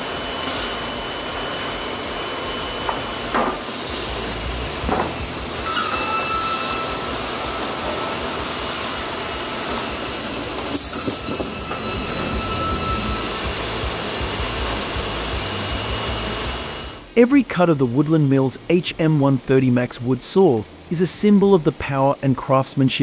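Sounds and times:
sawmill machinery running: 0.0 - 17.2
faint high whine: 0.0 - 22.9
short squealing glides: 5.6 - 14.0.

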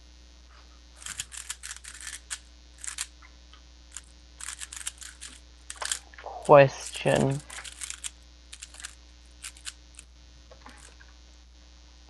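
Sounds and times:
keyboard and mouse clicking: 1.0 - 3.1, 4.0 - 6.0, 7.5 - 9.8.

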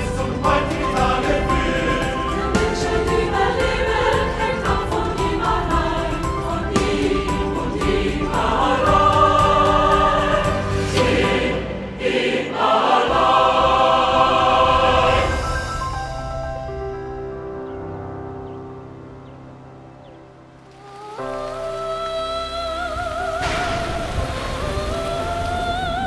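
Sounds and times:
choir singing sustained chords: 0.0 - 19.4.

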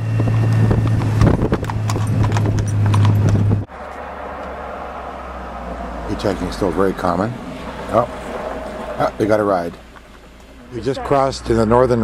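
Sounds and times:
low engine hum: 0.0 - 12.0
hooves clopping on road: 0.2 - 4.8, 6.0 - 11.3.

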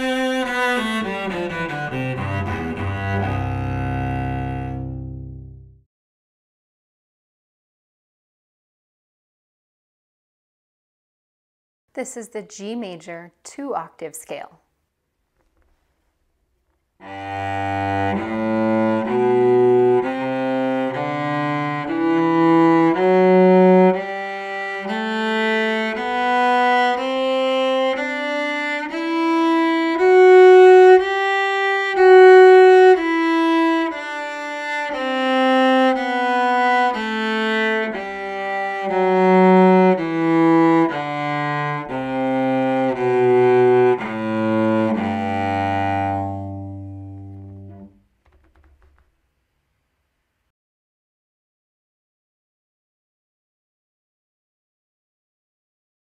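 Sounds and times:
cello playing a scale: 0.0 - 5.8, 17.0 - 48.0.

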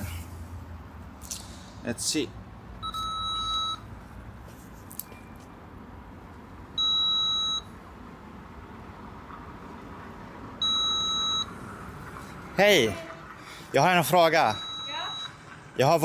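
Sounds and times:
intercom electronic beep: 2.8 - 3.8, 6.8 - 7.7, 10.6 - 11.5, 14.5 - 15.4.

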